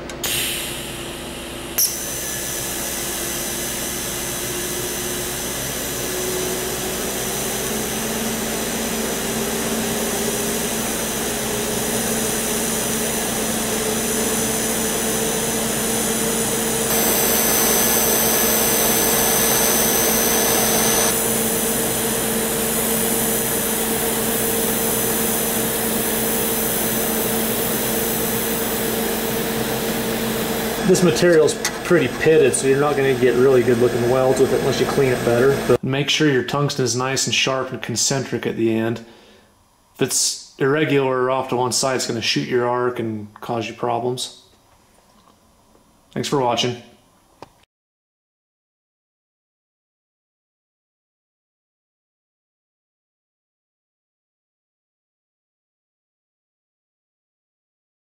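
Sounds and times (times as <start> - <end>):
welding arc hiss and buzz: 0.1 - 35.8
sharp click: 1.8 - 2.0.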